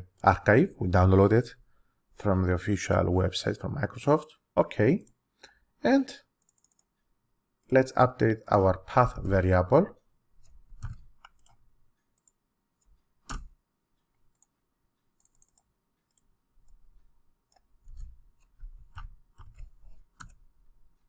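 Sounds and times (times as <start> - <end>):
computer mouse clicks: 6.4 - 7.0, 10.4 - 13.6, 14.2 - 14.6, 15.2 - 16.8, 17.5 - 20.5.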